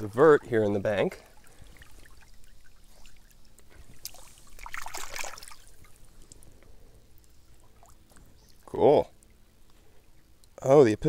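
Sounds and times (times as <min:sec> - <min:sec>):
creek water trickling: 0:00.0 - 0:11.0
splashing in stream: 0:01.2 - 0:06.0.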